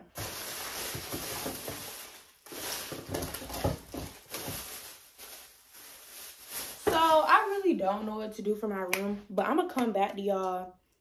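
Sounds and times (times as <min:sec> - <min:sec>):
plastic bags rustling: 0:00.0 - 0:07.8.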